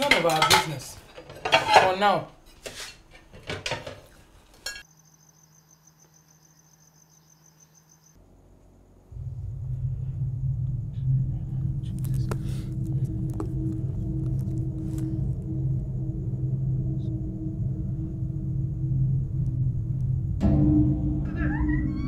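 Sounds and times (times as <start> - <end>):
dishes clattering: 0.0 - 4.8
crickets chirping: 4.7 - 22.0
low musical drone: 9.1 - 22.0.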